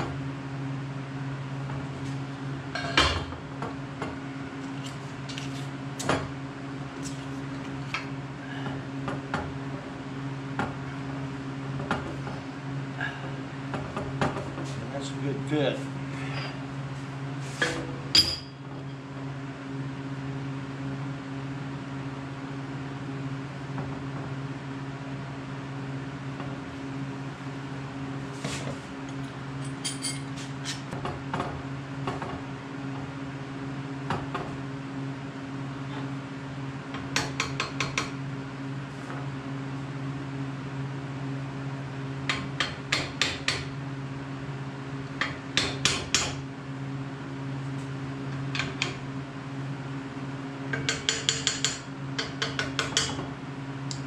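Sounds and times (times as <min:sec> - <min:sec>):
steady low hum: 0:00.0 - 0:54.0
metal parts clinking on steel frame: 0:29.6 - 0:30.8.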